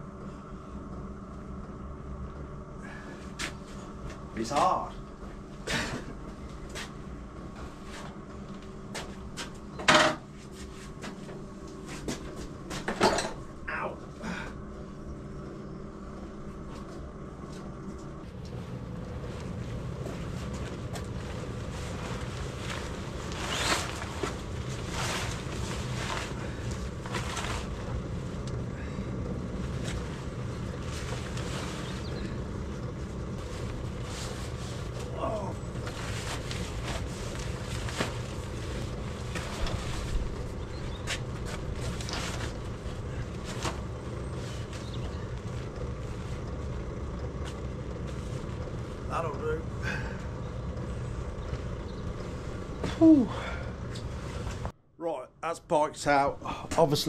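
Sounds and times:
steady low hum: 0.0s - 57.0s
motorcycle wheeled across concrete: 18.2s - 54.7s
fabric cover rustling: 18.6s - 28.4s, 29.5s - 46.8s.

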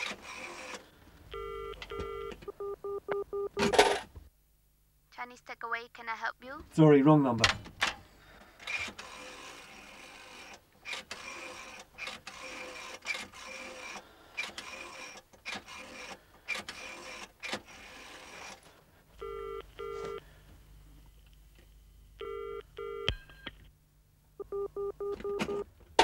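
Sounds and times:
telephone ringing tone: 1.3s - 3.8s, 19.2s - 20.2s, 22.2s - 23.2s, 24.4s - 25.6s
telephone line clicks: 1.4s - 2.5s
telephone line hiss: 1.4s - 3.8s, 19.2s - 20.3s.

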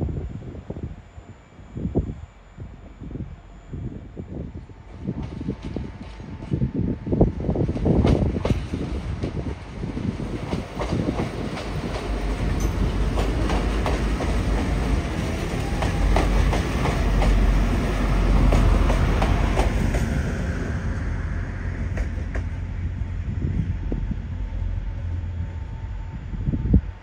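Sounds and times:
deep train rumble: 0.0s - 27.0s
train wheels clicking over joints: 7.6s - 20.4s.

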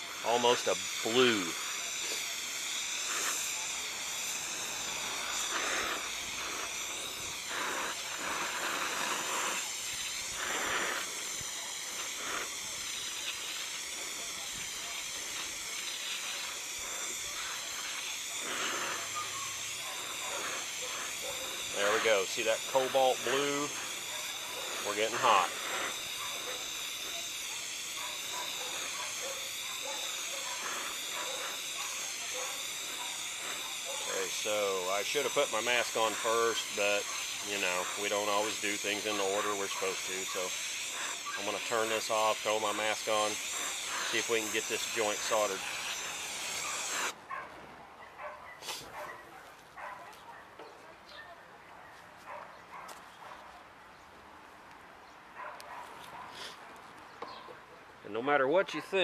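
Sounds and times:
gas torch flame hissing: 0.0s - 47.2s.

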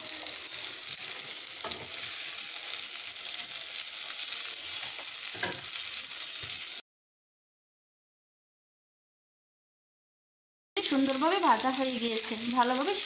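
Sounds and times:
vegetables sizzling in oil: 0.0s - 6.8s, 10.8s - 13.0s.

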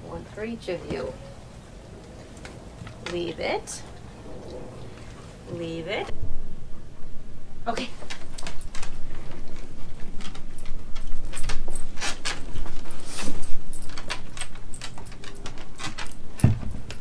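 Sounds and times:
collar tags jingling: 8.2s - 16.4s.

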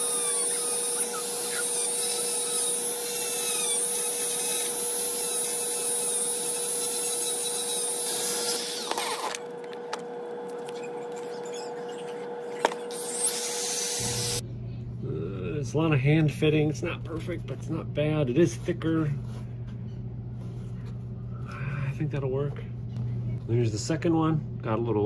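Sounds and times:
rotary tool whining: 0.0s - 14.4s.

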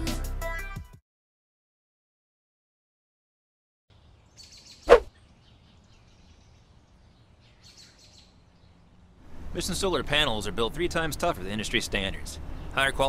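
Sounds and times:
bird chirps: 3.9s - 9.1s
sharp swish: 4.9s - 5.1s.

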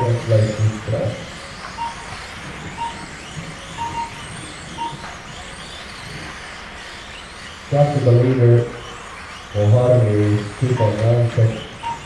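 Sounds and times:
toy car electric motors whining: 0.0s - 12.0s
short high beeps: 1.8s - 2.2s, 2.8s - 3.2s, 3.8s - 4.2s, 4.8s - 5.1s, 10.7s - 11.0s, 11.8s - 12.0s.

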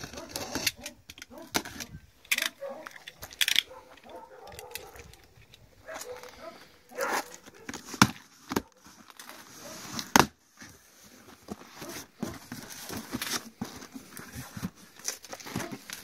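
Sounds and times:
rustling cardboard and plastic packing: 0.0s - 16.0s
cardboard box tearing open: 7.0s - 10.4s.

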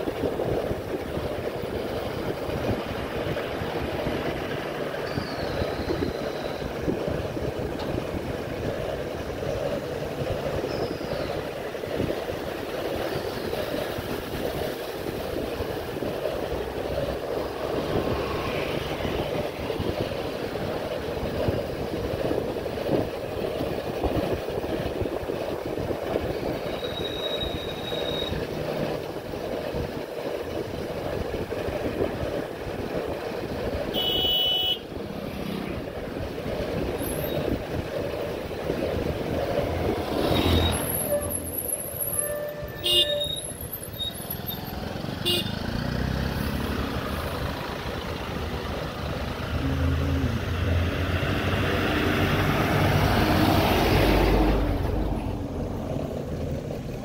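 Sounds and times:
wind and road rumble: 0.0s - 57.0s
shrill squeal: 26.8s - 28.4s, 40.5s - 44.6s.

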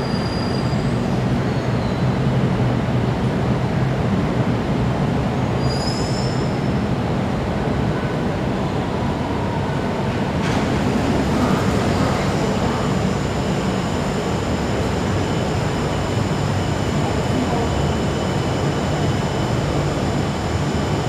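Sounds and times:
train rumble in tunnel: 0.0s - 21.0s
high steady whines: 6.6s - 21.0s.

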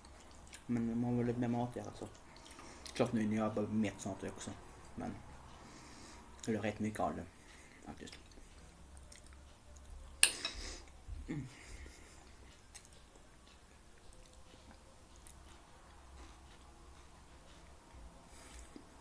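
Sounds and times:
person chewing: 0.0s - 0.8s, 2.0s - 3.0s, 8.0s - 11.0s, 11.6s - 19.0s.

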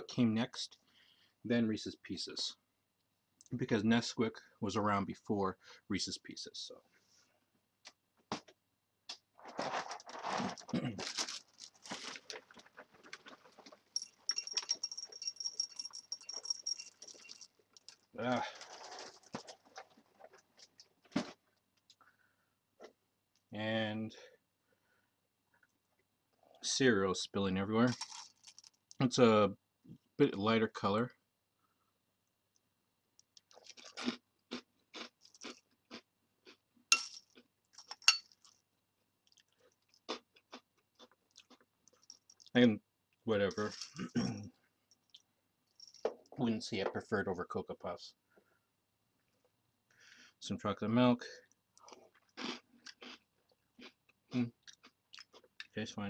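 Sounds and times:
cereal bag crinkling: 9.4s - 14.6s, 15.5s - 20.9s, 27.9s - 28.9s
chewing crunchy cereal: 9.5s - 14.3s, 16.6s - 21.0s, 27.9s - 28.8s, 33.2s - 38.6s, 39.2s - 42.6s, 51.5s - 55.7s
metal spoon clinking bowl: 14.0s - 17.4s, 36.9s - 37.2s, 38.0s - 38.4s.

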